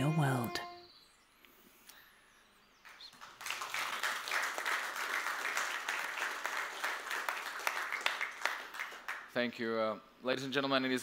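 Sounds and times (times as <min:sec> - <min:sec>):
audience applauding: 0:02.9 - 0:09.3.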